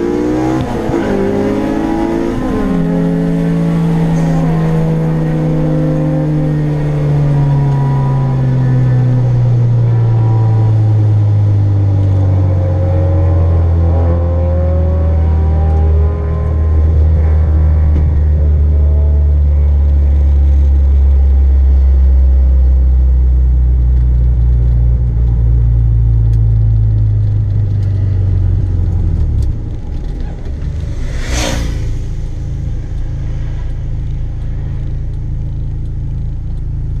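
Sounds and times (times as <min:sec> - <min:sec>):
car engine droning: 0:00.0 - 0:37.0
brief whoosh: 0:29.9 - 0:35.0.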